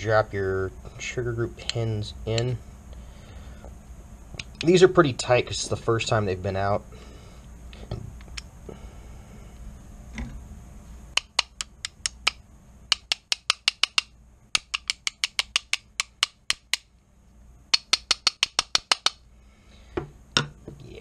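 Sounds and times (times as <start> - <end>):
mallet tapping pins: 11.2 - 16.9, 17.7 - 19.2.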